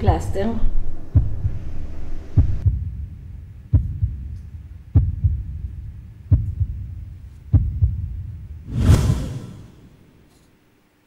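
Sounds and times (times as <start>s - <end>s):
heartbeat double thumps: 1.1s - 9.3s
low hum: 7.8s - 10.4s.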